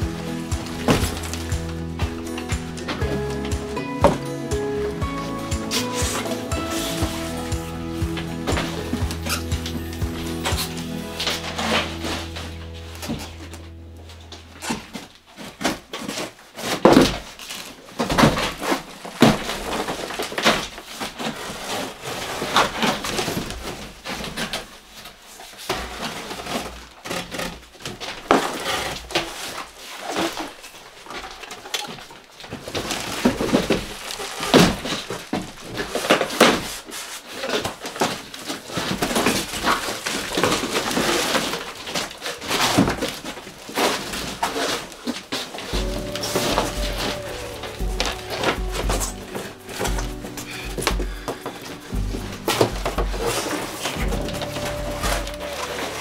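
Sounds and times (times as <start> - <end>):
cardboard scraping and rustling: 0.0 - 3.9, 5.1 - 56.0
boxes thumping on wooden floor: 0.0 - 13.4, 14.7 - 24.6, 32.5 - 36.8, 37.4 - 56.0.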